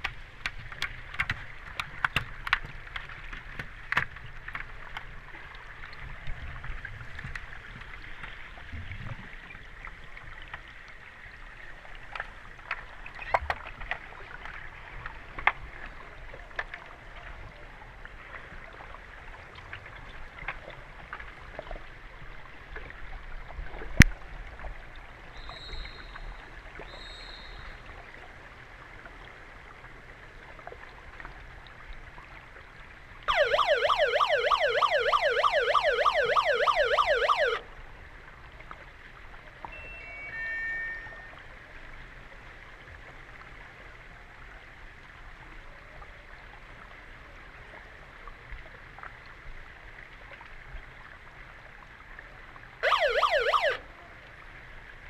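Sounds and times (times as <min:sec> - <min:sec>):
short high beeps: 0:39.7 - 0:41.4.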